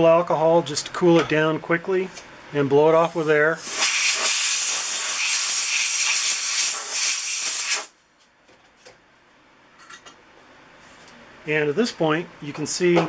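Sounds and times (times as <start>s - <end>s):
air blow gun hissing: 3.0s - 7.9s.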